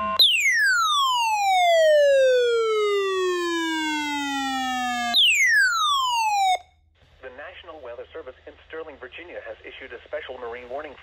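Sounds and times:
electronic alert siren sweeping down: 0.0 - 6.6.

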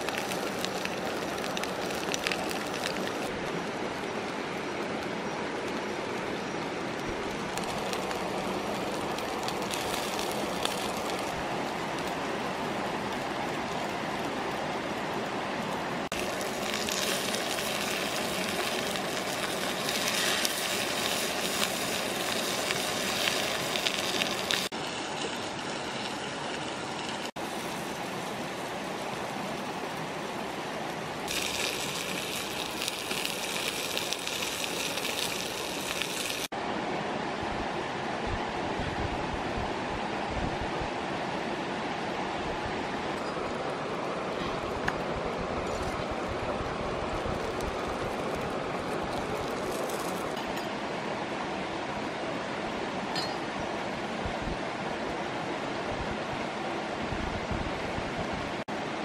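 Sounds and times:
meat sizzling on a hot pan: 0.0 - 3.3, 7.5 - 14.4, 16.1 - 30.2, 31.2 - 36.5, 47.2 - 50.4.

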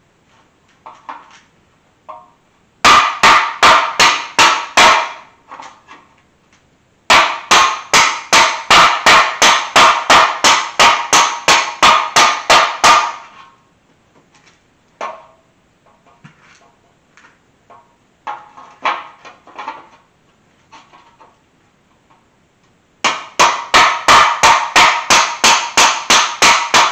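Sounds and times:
hammer blows on steel: 7.1 - 13.4, 23.0 - 26.9.

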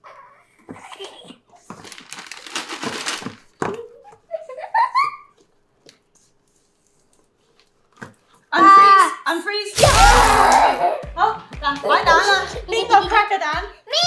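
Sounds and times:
child giggling: 3.6 - 5.4.

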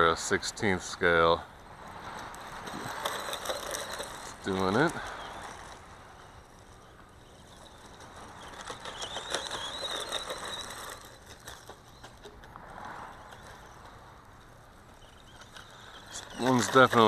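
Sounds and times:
tyres crunching gravel: 0.0 - 17.0
electric motor whining: 2.2 - 12.3.

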